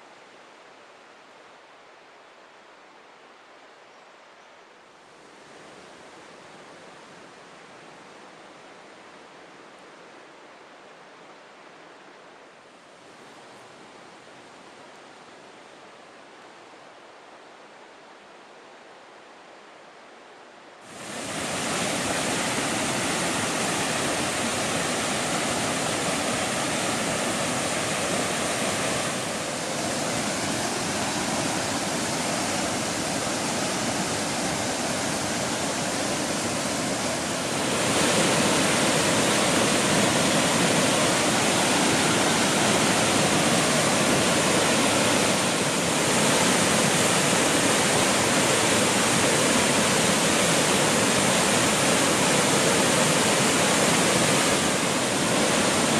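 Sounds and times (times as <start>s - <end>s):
waterfall rushing: 20.9s - 55.9s.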